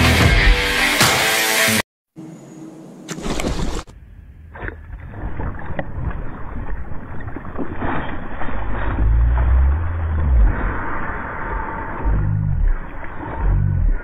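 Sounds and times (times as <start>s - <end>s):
fish thrashing in water: 5.0s - 12.0s.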